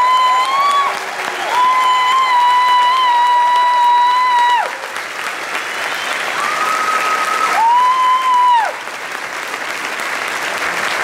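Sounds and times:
shrill cheers: 0:00.0 - 0:04.9, 0:05.6 - 0:08.8
audience applauding: 0:00.0 - 0:11.0.

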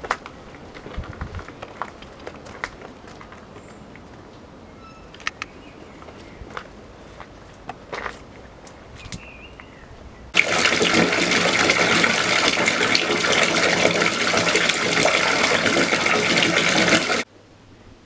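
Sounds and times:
bath tap running into water: 0:10.4 - 0:17.2.

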